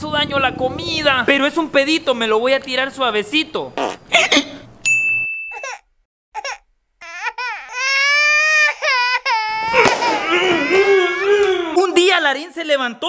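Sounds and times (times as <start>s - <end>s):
man imitating crying baby: 6.4s - 11.9s.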